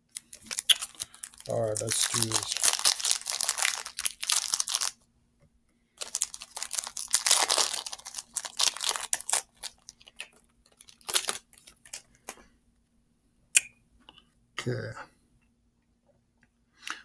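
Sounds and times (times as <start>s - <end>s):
foil wrapper tearing and crinkling: 0.2s - 5.0s, 6.0s - 12.1s.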